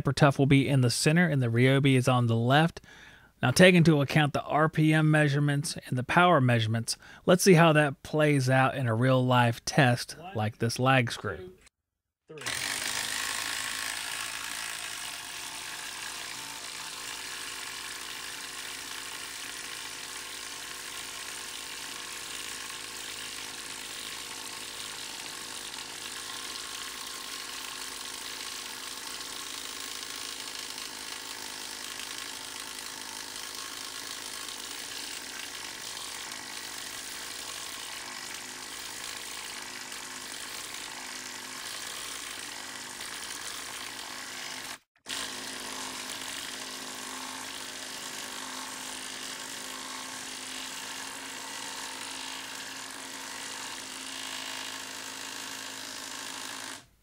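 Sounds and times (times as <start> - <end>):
impact wrench hammering screws: 12.4 - 56.9.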